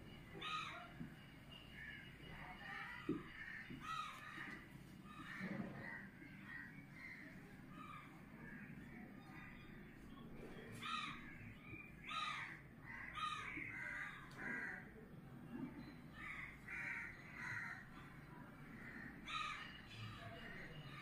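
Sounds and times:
crows cawing: 0.4s - 0.9s, 3.2s - 8.7s, 10.8s - 11.4s, 12.0s - 15.0s, 16.2s - 17.9s, 18.7s - 19.8s.

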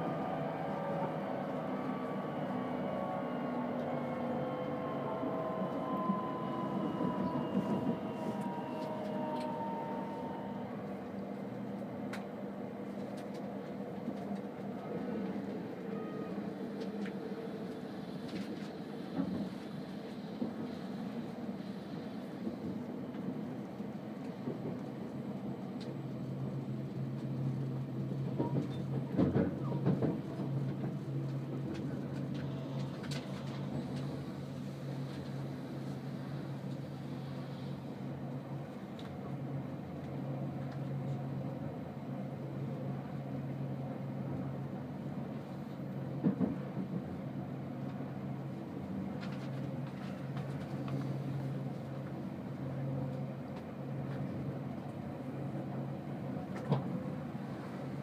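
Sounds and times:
train cabin hum: 0.0s - 58.0s
train knocks: 28.3s - 34.3s, 46.2s - 47.2s.

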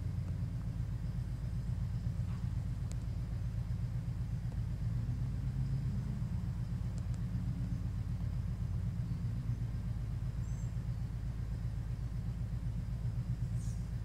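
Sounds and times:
steady low rumble: 0.0s - 14.0s
faint high chirp: 10.3s - 11.1s, 13.4s - 13.9s.

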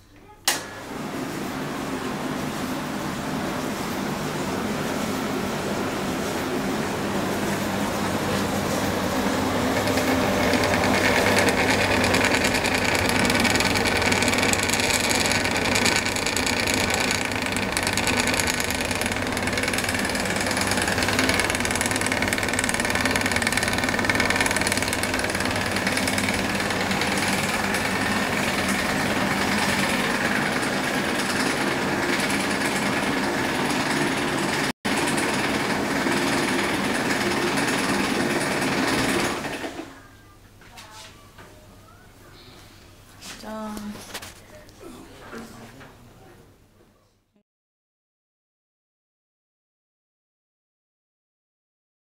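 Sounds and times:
tumble dryer motor humming: 0.4s - 40.0s
drum mechanical whir: 1.5s - 39.9s.

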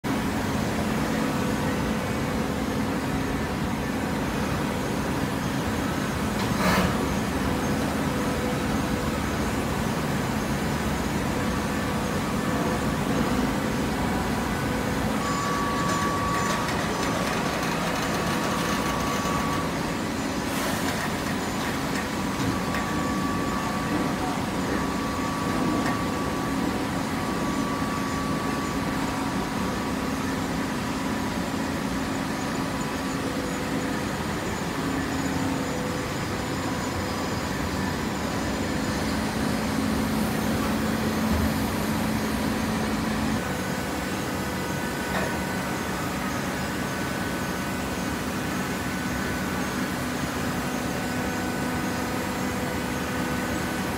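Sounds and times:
baler mechanical hum: 0.0s - 53.9s
faint high whine: 10.4s - 17.2s, 22.3s - 52.6s.

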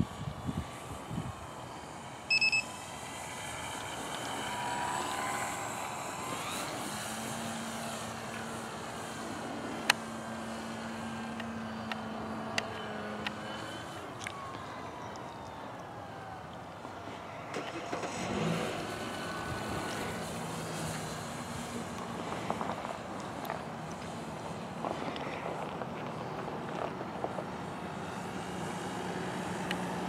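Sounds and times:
model airplane motor whining: 0.2s - 16.6s
electronic beep: 2.3s - 2.7s.

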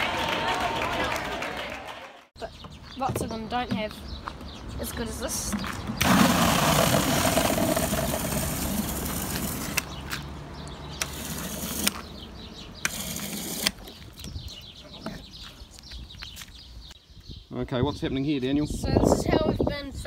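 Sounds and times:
water gushing into plastic bottle: 6.0s - 9.4s.

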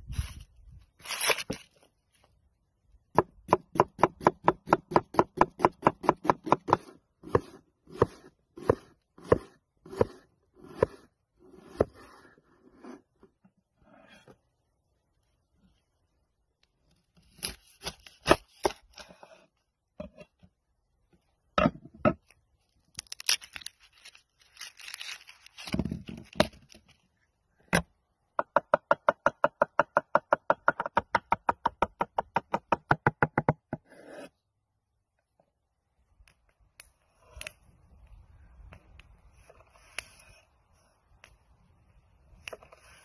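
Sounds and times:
crackly tearing handling sounds: 0.9s - 2.3s, 22.6s - 27.0s.

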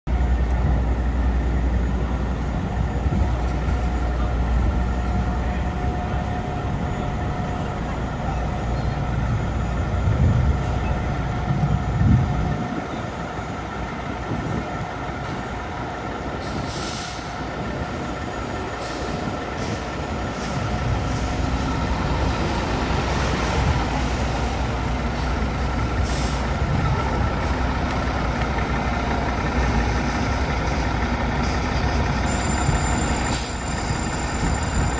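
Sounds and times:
fire engine diesel engine: 0.1s - 34.9s
air brake hisses: 16.4s - 17.5s, 26.0s - 26.5s.

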